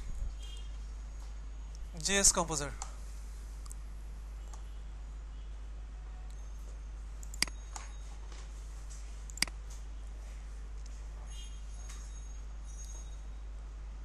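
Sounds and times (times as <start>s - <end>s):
steady low hum: 0.0s - 14.0s
computer mouse clicks: 7.2s - 7.6s, 9.3s - 9.6s.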